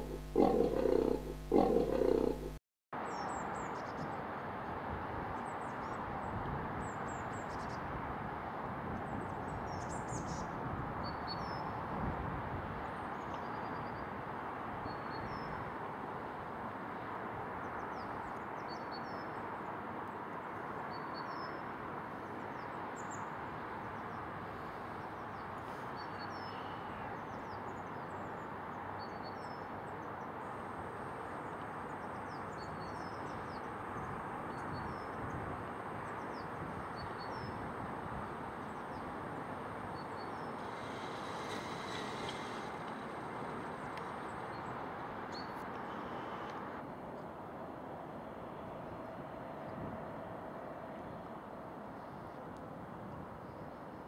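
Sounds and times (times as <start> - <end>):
outdoor background rumble: 0.0 - 2.6
small birds chirping: 0.0 - 2.6.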